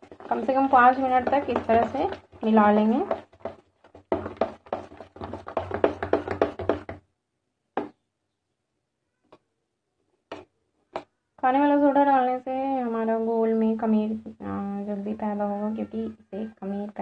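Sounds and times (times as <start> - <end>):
hand slapping batter in steel bowl: 0.0 - 7.0.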